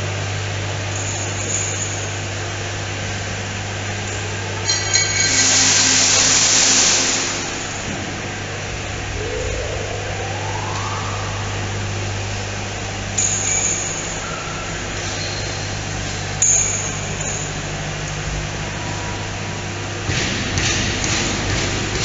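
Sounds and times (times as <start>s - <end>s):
low machine hum: 0.0s - 22.0s
hissing noise: 8.4s - 12.6s.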